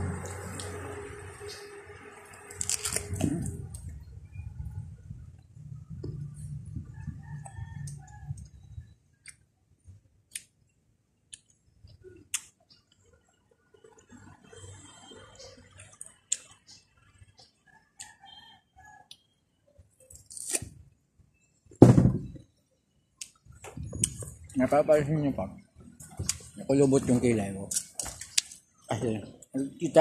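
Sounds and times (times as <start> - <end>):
thud: 21.8 - 22.4.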